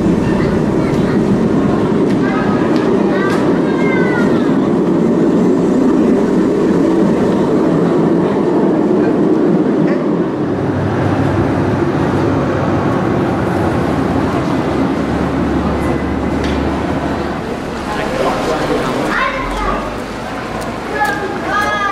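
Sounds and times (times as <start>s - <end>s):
trams rumbling on rails: 0.0s - 21.9s.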